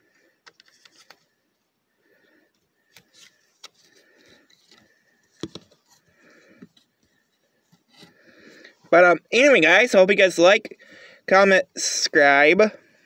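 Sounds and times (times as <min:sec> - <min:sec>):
small plastic clicks and scrapes: 0:00.4 - 0:01.3, 0:02.9 - 0:08.2.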